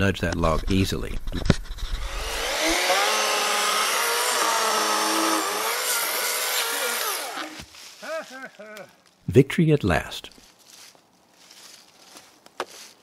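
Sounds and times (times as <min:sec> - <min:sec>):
electric chainsaw cutting log: 0:01.6 - 0:07.7.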